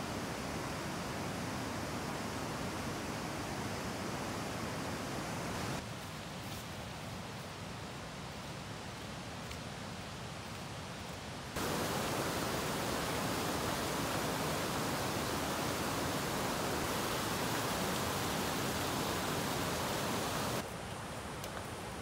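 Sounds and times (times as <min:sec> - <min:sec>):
mountain stream rushing: 0:00.0 - 0:05.8, 0:11.5 - 0:22.0.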